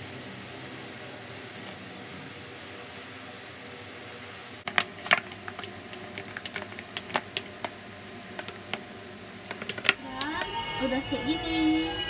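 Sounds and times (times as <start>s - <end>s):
dough kneading clicks in metal bowl: 4.7s - 10.0s.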